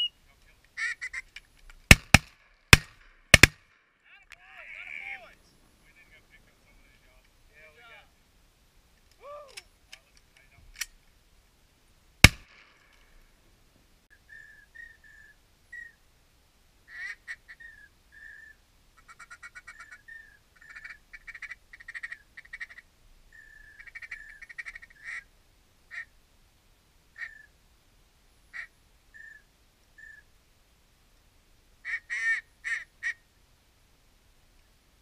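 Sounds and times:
duck quacks and chatter: 0:00.8 - 0:01.3, 0:16.9 - 0:17.7, 0:19.0 - 0:22.9, 0:23.8 - 0:25.3, 0:31.8 - 0:33.2.

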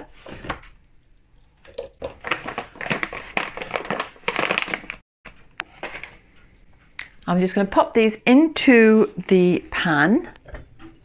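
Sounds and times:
paper bag crinkling: 0:02.1 - 0:05.0.

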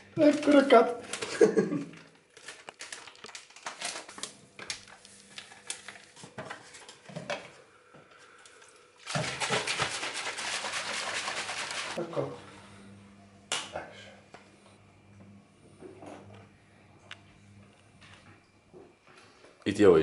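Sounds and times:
foil sachets crinkling and tearing: 0:00.2 - 0:07.0
shaker bottle rattling and sloshing: 0:09.0 - 0:12.0.

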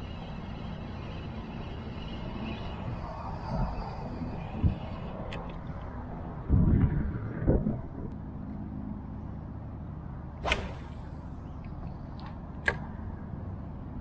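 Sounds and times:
steady low rumble: 0:00.0 - 0:08.4
fishing rod swish: 0:10.4 - 0:11.2.

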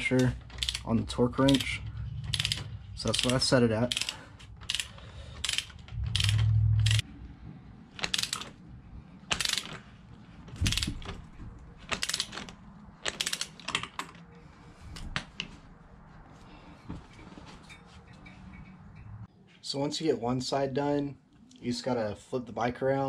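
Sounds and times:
torque wrench ratcheting clicks: 0:00.0 - 0:07.0, 0:08.0 - 0:08.5, 0:09.3 - 0:09.8, 0:10.6 - 0:11.0, 0:11.9 - 0:13.8
low rumble: 0:01.0 - 0:03.4, 0:05.5 - 0:09.3.

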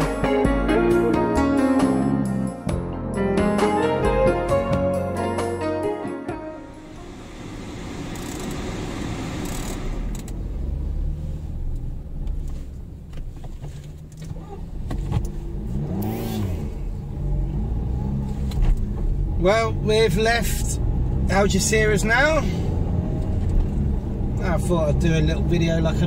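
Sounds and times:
car engine and road rumble: 0:06.3 - 0:26.0.

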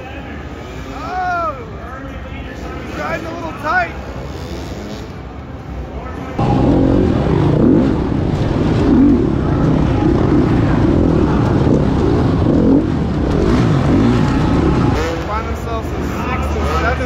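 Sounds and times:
dirt bike engine revving: 0:06.4 - 0:17.0.

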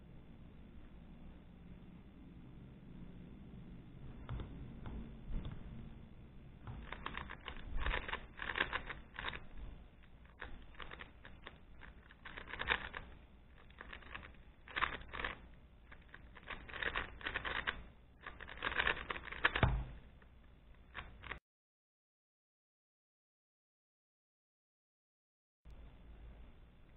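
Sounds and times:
rapid plastic cube clicking: 0:06.6 - 0:21.4.

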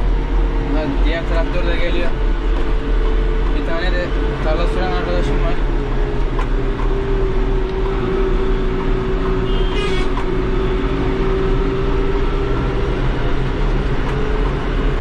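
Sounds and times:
diesel tractor engine under load: 0:00.0 - 0:15.0
turbo whine: 0:00.0 - 0:15.0.

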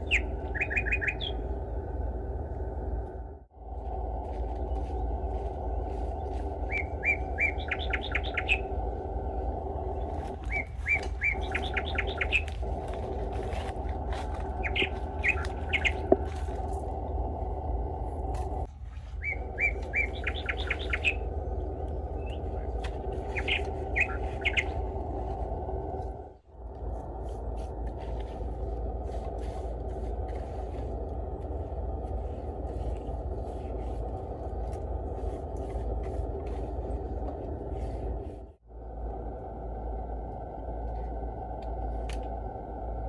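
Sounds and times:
songbird chirping and trilling: 0:00.0 - 0:02.0, 0:04.2 - 0:17.7, 0:19.0 - 0:26.2.

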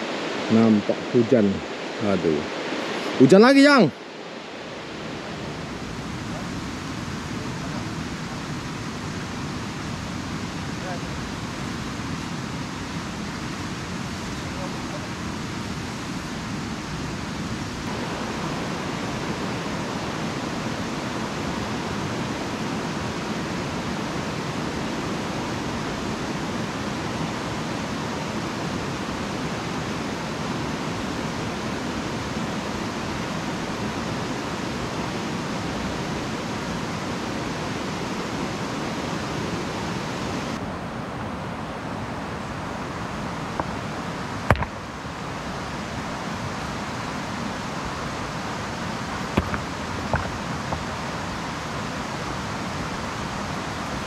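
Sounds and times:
river rushing over rapids: 0:00.0 - 0:54.0
sharp knock: 0:44.5 - 0:44.7.

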